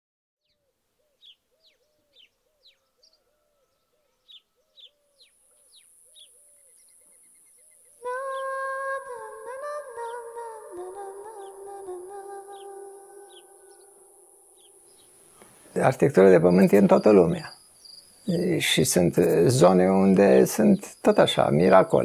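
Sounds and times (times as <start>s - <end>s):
birds chirping: 0.4s - 22.0s
steady high hiss: 5.2s - 22.0s.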